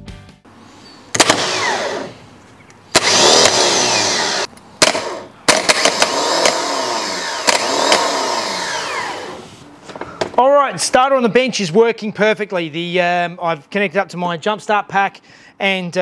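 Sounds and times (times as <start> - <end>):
starter motor whirring: 1.1 - 2.2, 2.9 - 9.6.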